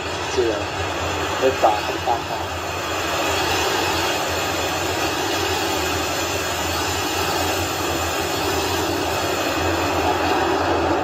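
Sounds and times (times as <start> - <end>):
rocket engines roaring: 0.0 - 11.0.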